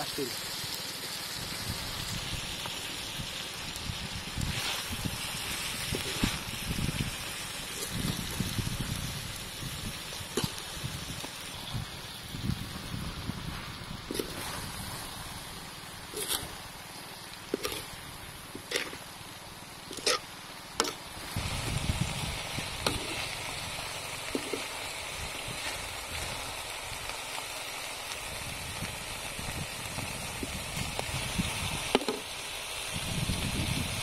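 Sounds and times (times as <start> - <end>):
hot wok hissing: 0.0 - 34.0
metal spatula scraping a wok: 16.1 - 16.6, 17.5 - 17.9, 18.6 - 19.0, 19.9 - 20.2, 20.8 - 21.0.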